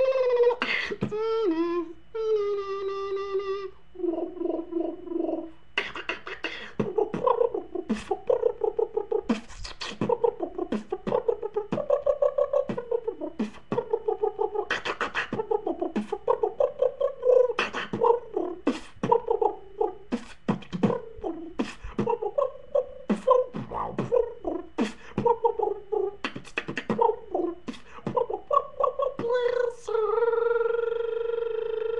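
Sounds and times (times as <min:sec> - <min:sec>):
beatboxing bass wobbles: 0:00.0 - 0:31.9
mouth snares and clicks: 0:05.8 - 0:16.4, 0:26.2 - 0:28.7.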